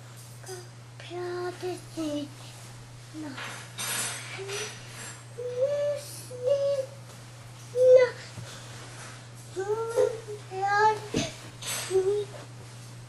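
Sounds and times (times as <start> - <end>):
toddler sing-song voice: 0.4 - 2.5, 4.4 - 4.8, 5.4 - 7.1, 7.7 - 8.4, 9.5 - 12.5.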